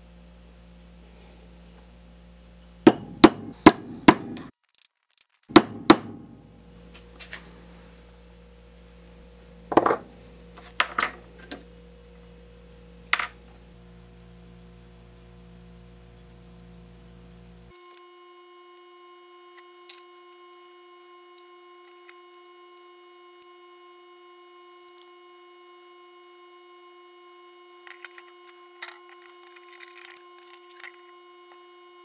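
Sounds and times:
hammer striking steel punch: 2.9 - 4.5, 5.5 - 6.5.

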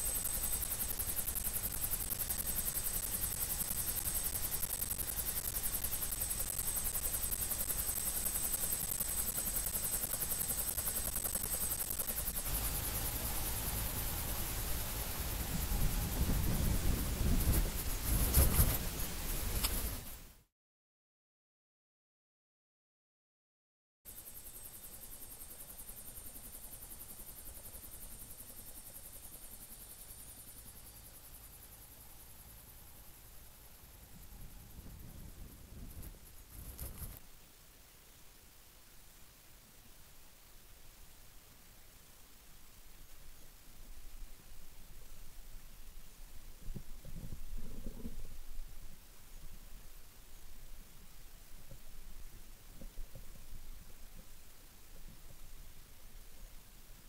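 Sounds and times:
helicopter rotor and engine: 0.0 - 20.0, 24.1 - 33.3
high whine: 0.0 - 20.3.

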